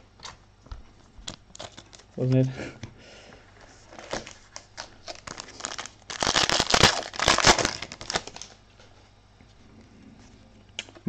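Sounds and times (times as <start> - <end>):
foil wrapper crinkling and tearing: 1.2 - 2.2, 3.9 - 8.6.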